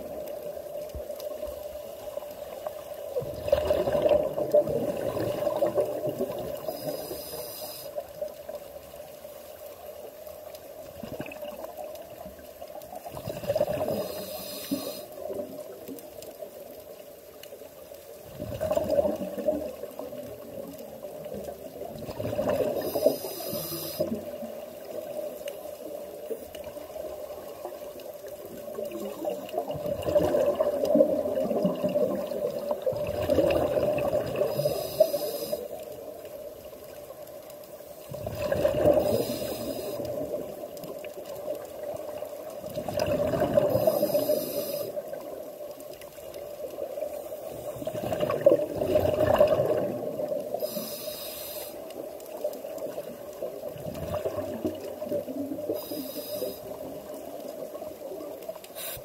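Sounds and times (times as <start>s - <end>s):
exhaled bubbles gurgling: 0.0s - 7.9s, 10.4s - 16.8s, 18.2s - 37.3s, 38.0s - 59.0s
regulator hiss: 6.5s - 8.1s, 13.9s - 15.3s, 22.7s - 24.3s, 34.4s - 35.8s, 39.0s - 40.3s, 43.7s - 45.2s, 50.5s - 51.9s, 55.7s - 56.8s, 58.7s - 59.0s.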